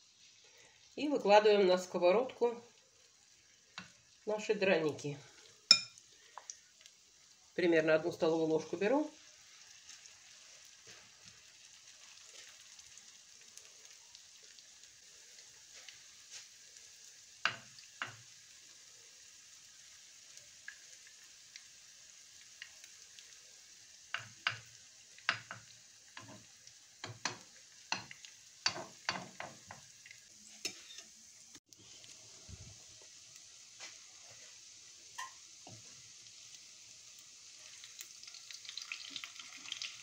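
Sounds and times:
pancakes sizzling in oil: 0.0s - 40.0s
fork and spoon tapping pan: 5.7s - 6.0s, 27.0s - 29.6s.

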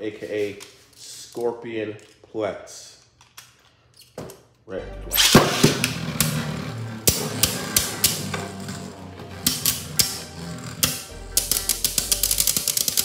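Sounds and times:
spinning tops launched: 5.1s - 13.0s
spinning tops whirring: 5.2s - 13.0s
spinning tops clacking together: 7.0s - 13.0s.

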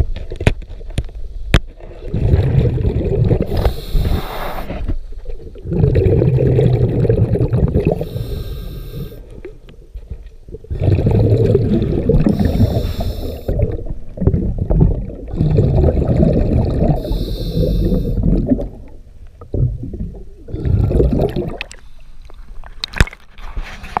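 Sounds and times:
bubbling exhales: 2.0s - 9.6s, 10.5s - 18.9s, 19.5s - 21.9s
regulator hissing inhales: 3.5s - 4.8s, 8.0s - 9.2s, 12.3s - 13.5s, 17.0s - 18.2s.

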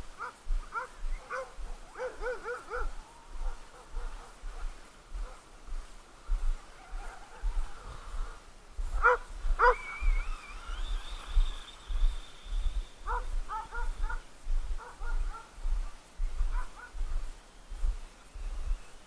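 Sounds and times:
dogs barking and yipping: 0.2s - 17.3s
thin whine of toy car: 9.8s - 12.8s.

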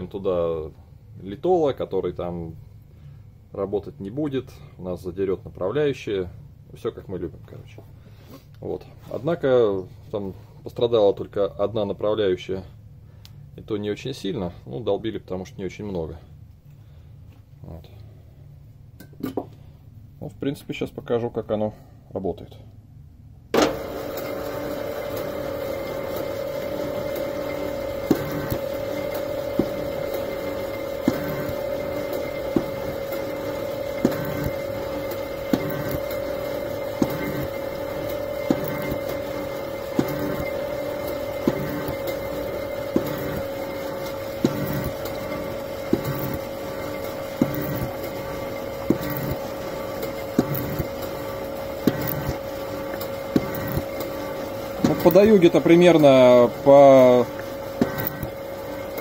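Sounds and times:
motor hum with held tone: 23.5s - 59.0s
milling machine cutter stroking: 23.6s - 59.0s.

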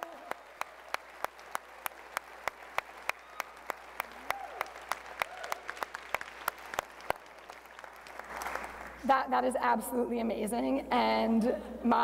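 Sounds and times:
person clapping hands: 0.0s - 9.0s.

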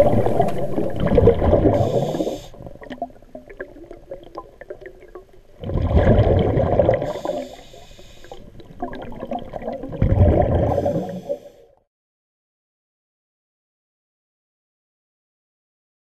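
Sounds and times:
exhaled bubbles underwater: 0.0s - 11.6s
underwater crackling and ticking: 0.0s - 11.6s.

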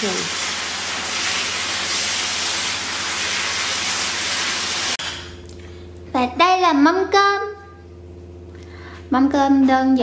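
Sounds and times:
food sizzling in hot oil: 0.0s - 5.0s.

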